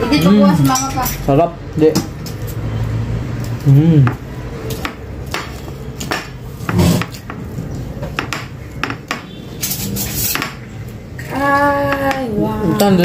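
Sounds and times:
tableware clinking and scraping: 0.0s - 1.5s, 5.4s - 10.8s.

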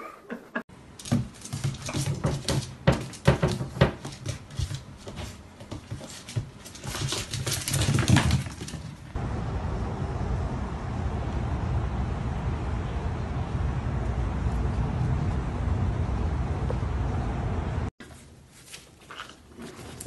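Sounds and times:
claws clicking on hard floor: 1.0s - 9.1s
paw patter: 1.0s - 9.2s.

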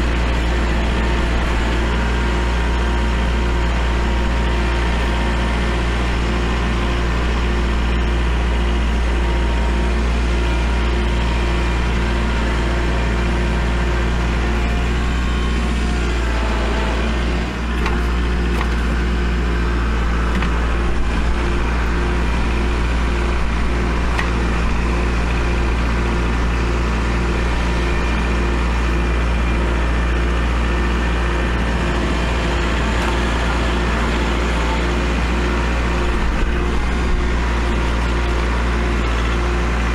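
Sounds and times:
tractor diesel engine droning: 0.0s - 39.9s.

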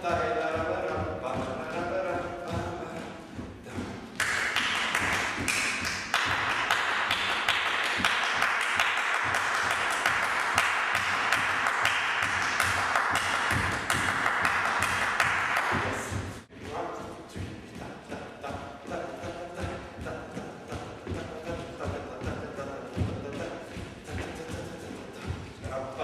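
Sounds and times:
feet tapping on wooden floor: 0.0s - 26.0s
hand clapping: 3.7s - 16.5s.

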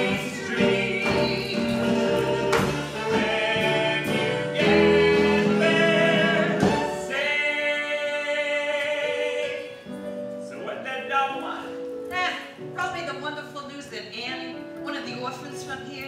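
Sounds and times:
voices singing in harmony: 0.0s - 10.0s
musical accompaniment: 0.0s - 16.0s.

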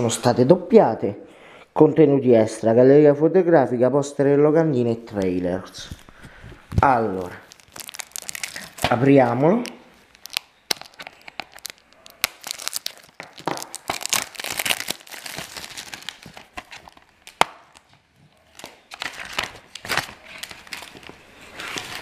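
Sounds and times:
plastic wrap crinkling: 5.8s - 22.0s.

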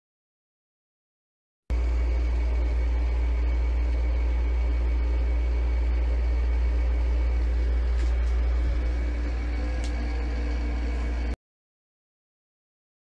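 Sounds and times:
air conditioner humming: 1.7s - 11.4s.

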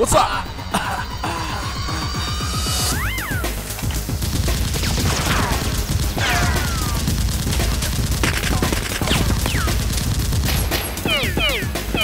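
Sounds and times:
automatic gunfire bursts: 4.3s - 12.0s.

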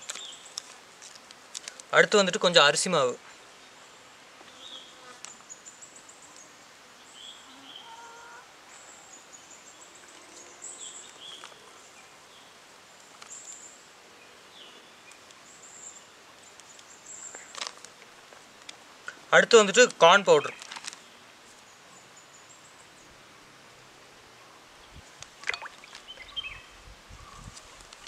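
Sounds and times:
small birds chirping: 0.0s - 0.8s, 8.7s - 17.8s, 24.8s - 28.0s
low hiss: 0.0s - 28.0s.

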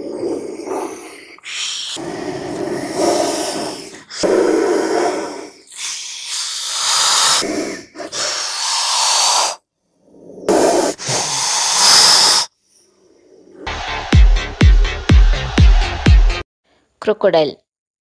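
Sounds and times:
cobra hissing: 0.0s - 13.6s.

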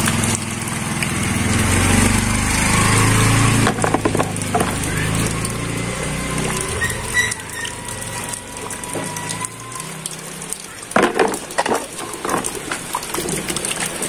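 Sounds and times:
rain on wet ground: 0.0s - 14.0s.

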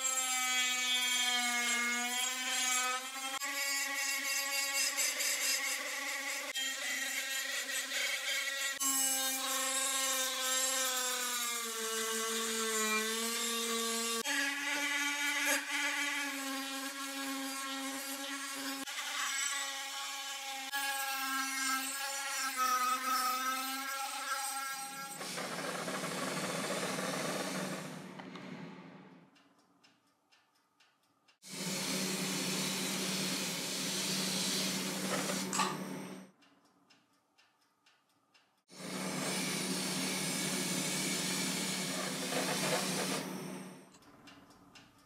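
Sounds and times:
rotary tool grinding metal: 0.0s - 28.0s, 38.7s - 43.6s.

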